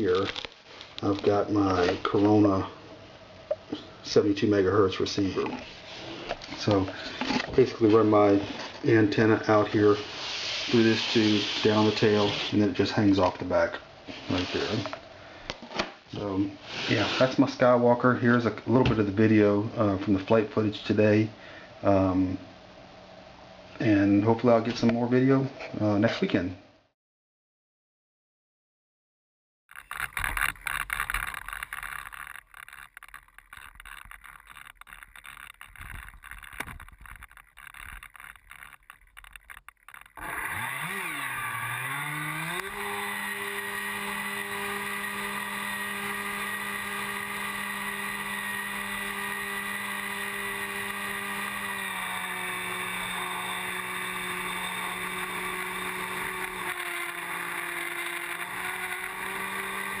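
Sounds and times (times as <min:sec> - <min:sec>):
electric motor whine: 0:29.8 - 1:00.0.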